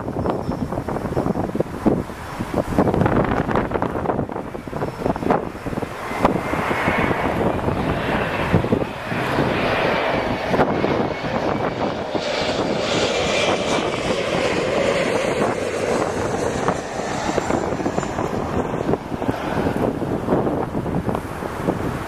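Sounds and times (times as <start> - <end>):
jet airliner passing overhead: 0.0 - 22.0.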